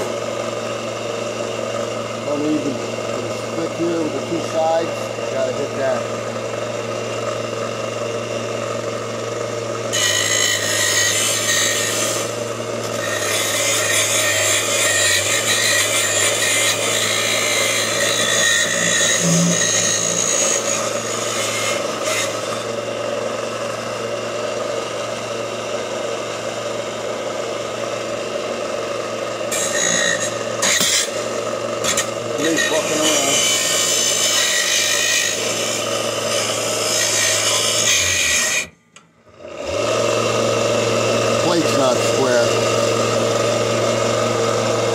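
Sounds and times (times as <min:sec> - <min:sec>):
bench sander grinding steel: 0:00.0 - 0:44.9.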